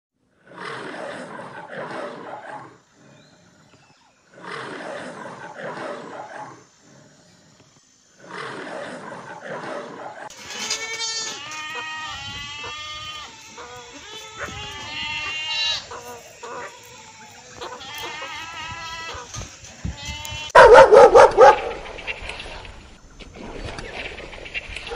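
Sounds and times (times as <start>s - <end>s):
lion roaring: 4.3s - 7.4s, 8.1s - 10.3s
herd of goats bleating: 10.3s - 20.6s.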